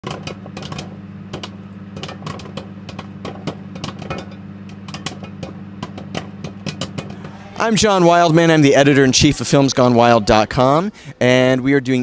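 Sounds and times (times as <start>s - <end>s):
popcorn popping: 0.0s - 8.4s
steady low hum: 0.0s - 12.0s.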